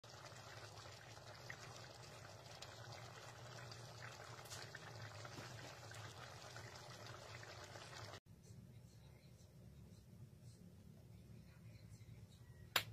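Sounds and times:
stew bubbling in a pan: 0.0 - 8.2.

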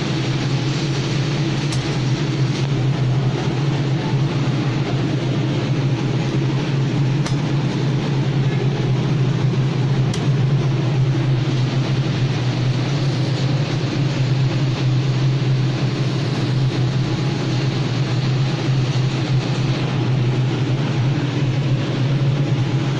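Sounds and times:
low mechanical rumble with hiss: 0.0 - 22.9.

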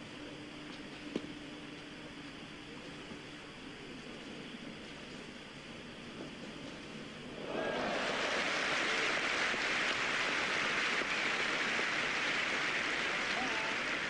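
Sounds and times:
stadium crowd applauding: 7.4 - 14.0.

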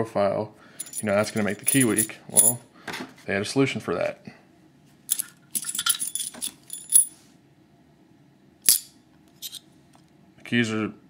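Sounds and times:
keys jingling: 0.8 - 2.6, 5.1 - 7.1, 8.7 - 9.6
sharp key clinks: 0.8 - 2.6, 5.1 - 7.1.

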